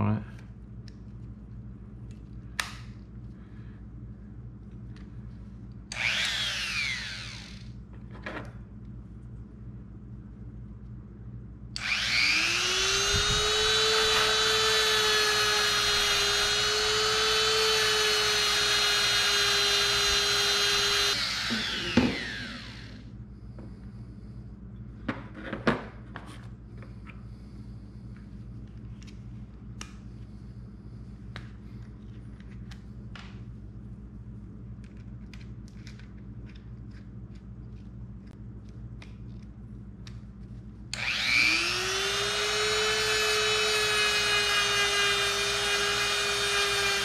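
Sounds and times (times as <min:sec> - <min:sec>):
rotary tool whining: 0:05.9 - 0:07.8, 0:11.8 - 0:23.1, 0:40.9 - 0:47.0.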